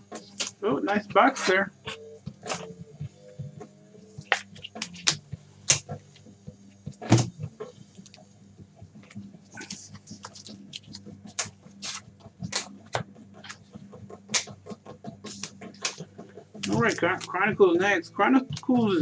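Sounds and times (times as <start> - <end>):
cards clicking and rustling: 9.0 - 13.6, 14.2 - 14.6, 15.2 - 17.4.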